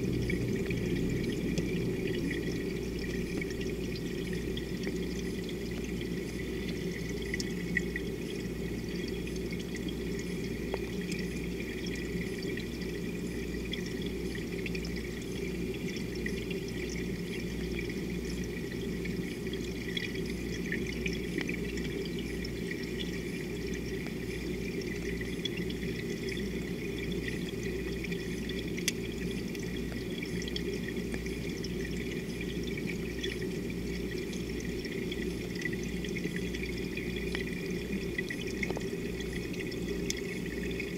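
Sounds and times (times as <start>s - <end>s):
underwater water noise: 0.0s - 40.9s
faint ticks: 10.7s - 11.3s, 28.8s - 30.0s, 37.2s - 40.3s.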